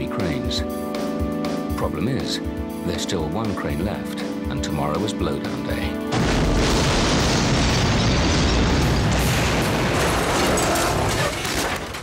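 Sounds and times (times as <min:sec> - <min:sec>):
explosive blast: 0:06.1 - 0:11.6.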